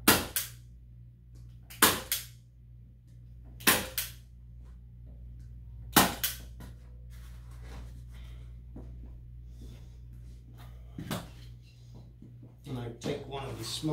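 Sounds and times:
staple gun snapping: 3.6 - 4.2.

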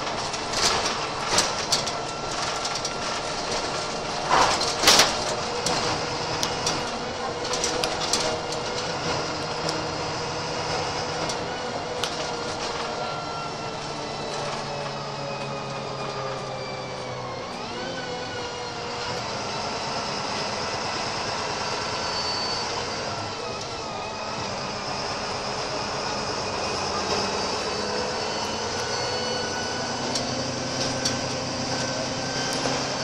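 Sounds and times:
bus engine whining: 0.0 - 33.0.

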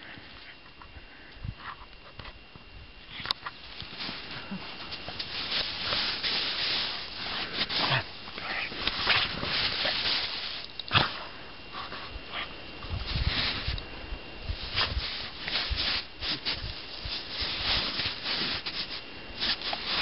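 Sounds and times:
snow crunching: 3.5 - 12.0, 13.0 - 13.8, 14.4 - 20.0
fur rustling against snow: 3.5 - 20.0.

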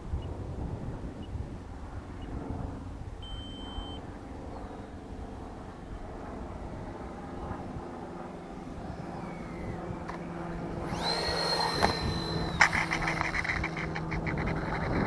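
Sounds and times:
electric ducted fans whining: 0.0 - 15.0
wheels rattling on runway: 8.4 - 15.0
model jet touching down knock: 8.9 - 15.0.

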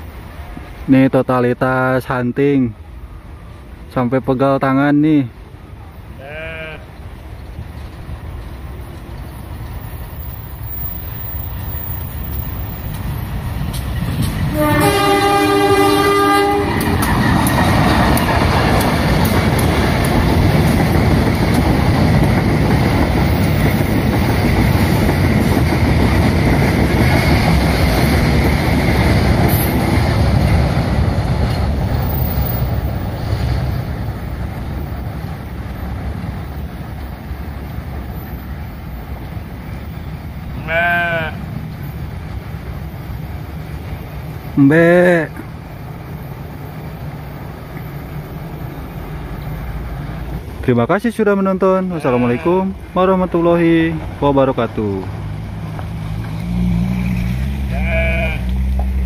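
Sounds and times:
diesel locomotive rumbling: 0.0 - 59.0
wheels clattering over rails: 7.7 - 39.4
train horn blast: 14.5 - 17.0.

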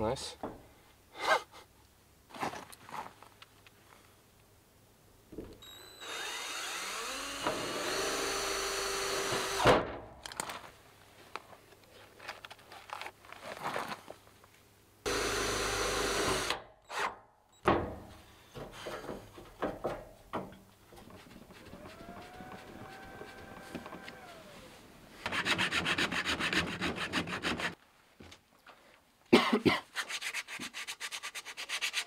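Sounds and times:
cordless drill running: 6.0 - 9.6, 15.1 - 16.5, 21.6 - 24.8.

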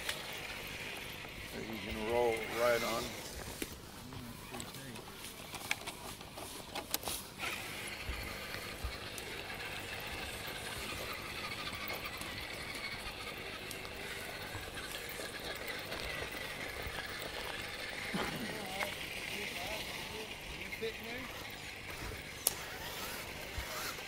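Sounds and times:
electric motor whining: 0.0 - 24.0.

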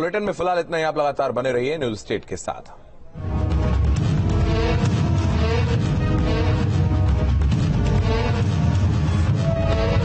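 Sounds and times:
news theme music: 3.2 - 10.0.

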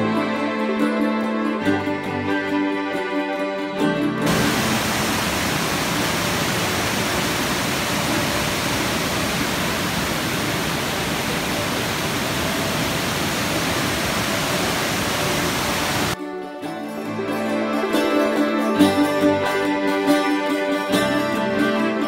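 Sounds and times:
waterfall rushing over rocks: 4.3 - 16.2.

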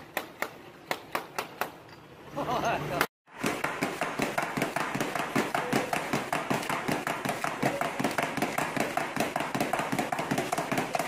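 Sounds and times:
hand stamp tapping on paper: 3.4 - 11.0.

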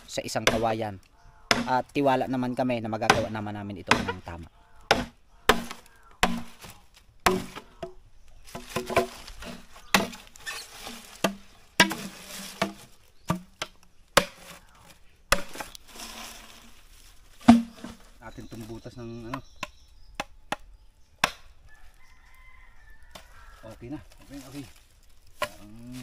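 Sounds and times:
machete chopping bamboo: 0.0 - 0.8, 1.5 - 1.9, 3.0 - 14.7, 15.3 - 15.8, 17.4 - 18.0, 19.3 - 21.6, 25.3 - 25.7
hollow bamboo ringing: 17.4 - 18.0.

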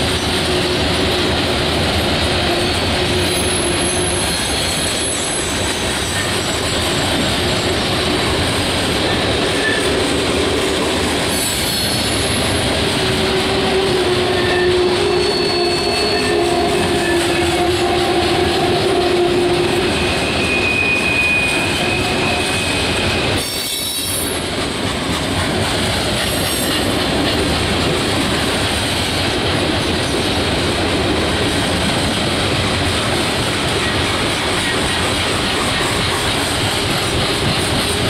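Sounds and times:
steel wheels on rail: 0.0 - 38.0
wheel squeal: 2.5 - 7.1, 9.6 - 10.0, 14.2 - 24.4.

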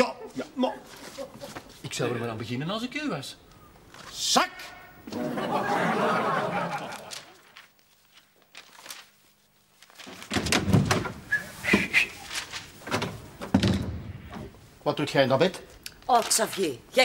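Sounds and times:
studio audience laughter: 5.1 - 7.4
knocks and thumps: 10.3 - 11.9, 12.8 - 14.6
door opening: 12.8 - 14.6.

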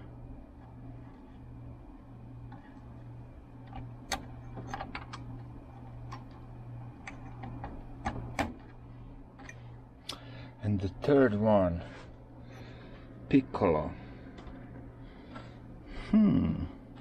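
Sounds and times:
steady low hum: 0.0 - 17.0
wire connectors clicking: 3.6 - 8.8.

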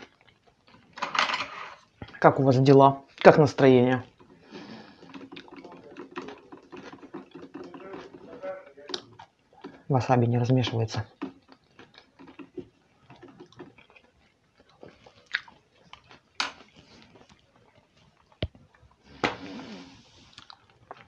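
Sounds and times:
person chewing food: 0.0 - 1.0, 4.0 - 9.9, 11.1 - 21.0
short breath: 4.4 - 5.2
wet mouth clicks: 14.8 - 16.1, 20.3 - 21.0.

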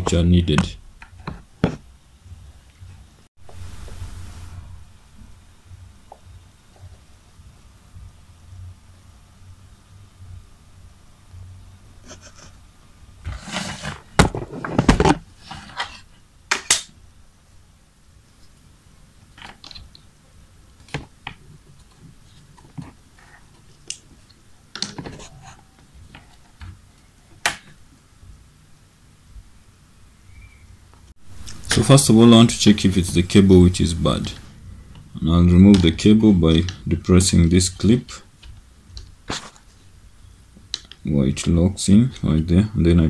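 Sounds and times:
thin hiss: 3.4 - 7.1
plastic case rustling and knocking: 13.3 - 15.3.

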